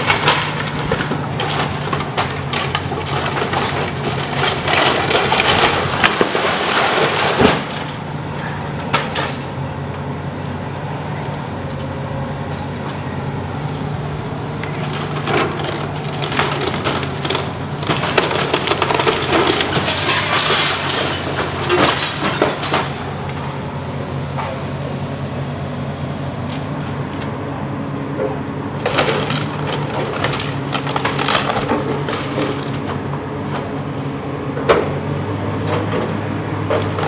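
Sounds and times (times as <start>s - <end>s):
timber cracking and splintering: 0.0s - 8.2s, 14.6s - 23.4s, 28.8s - 33.0s
excavator diesel engine running: 0.0s - 37.0s.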